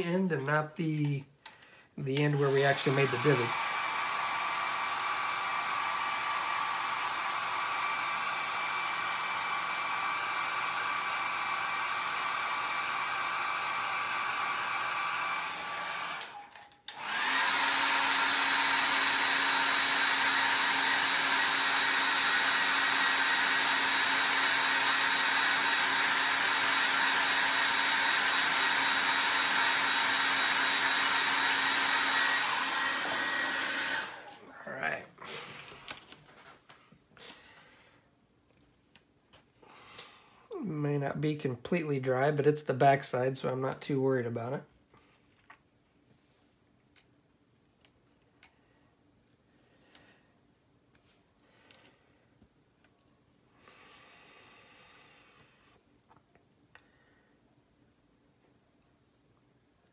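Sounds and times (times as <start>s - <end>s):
hair dryer blowing: 2.2s - 36.0s, 53.6s - 55.6s.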